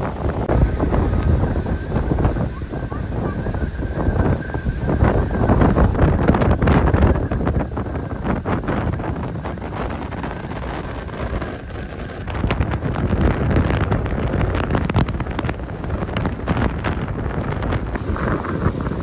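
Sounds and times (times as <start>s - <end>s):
waves washing against rocks: 0.0s - 19.0s
wind buffeting microphone: 0.0s - 19.0s.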